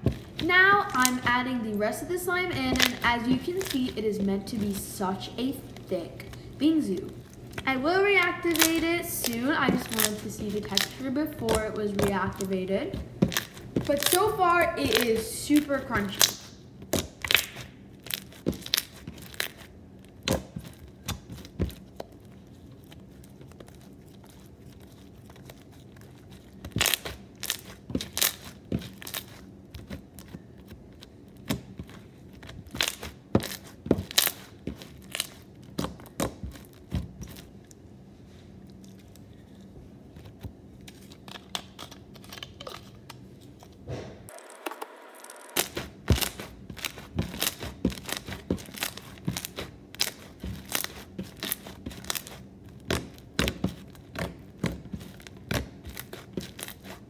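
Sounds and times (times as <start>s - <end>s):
slime crackling when squeezed: 8.2s - 12.0s.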